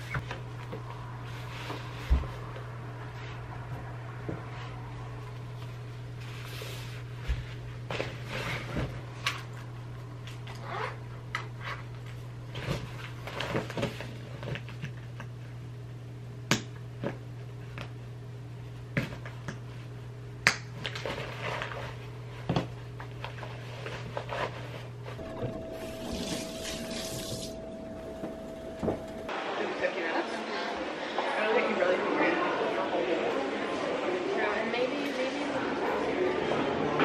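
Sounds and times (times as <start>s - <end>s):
low hum: 25.0s - 29.4s.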